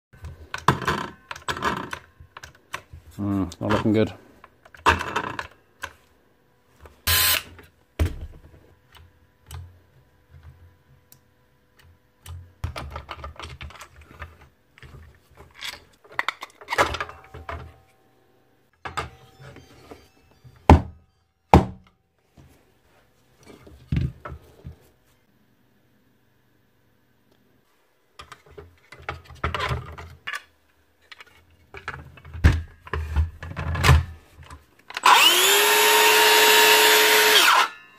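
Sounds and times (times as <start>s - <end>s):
plastic and metal parts clattering: 0.2s - 6.0s, 12.6s - 17.9s, 28.2s - 35.1s.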